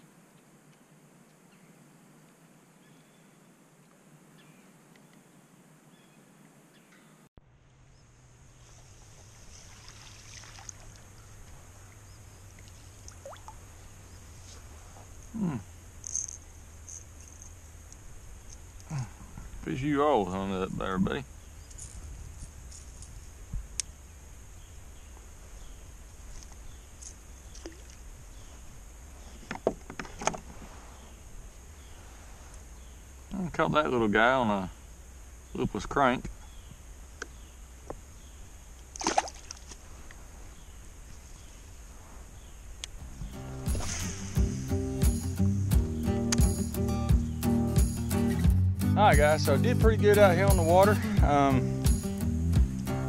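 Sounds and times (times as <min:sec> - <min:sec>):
fish splashing at water surface: 0:08.8 - 0:11.4, 0:39.0 - 0:39.8
water trickling and dripping: 0:09.0 - 0:13.9
low rumble: 0:43.0 - 0:47.4
sharp clicks: 0:46.3 - 0:46.7.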